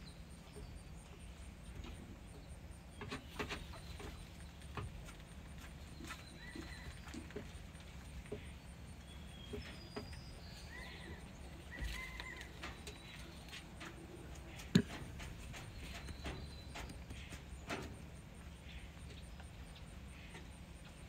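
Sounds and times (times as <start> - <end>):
soft ticks and scuffs: 3.0 - 8.5, 11.2 - 18.0
faint high bird chirps: 15.6 - 17.8.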